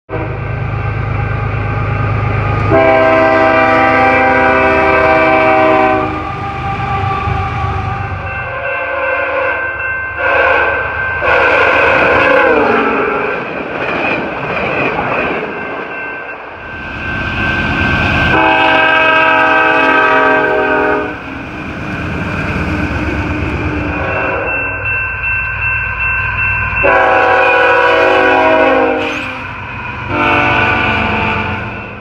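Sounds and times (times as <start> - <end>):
locomotive horn blasts: 0.1 - 0.5, 2.6 - 6.6, 10.2 - 13.3, 18.3 - 21.2, 23.9 - 24.6, 26.8 - 31.9
train rumbling and clattering: 0.1 - 32.0
crossing signal ringing: 0.6 - 13.4, 14.8 - 32.0.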